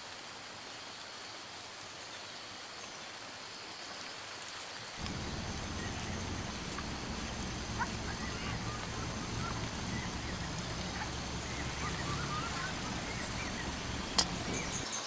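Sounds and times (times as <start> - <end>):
steady hiss: 0.0 - 15.0
low hum: 5.0 - 14.8
faint bird chirps: 5.0 - 15.0.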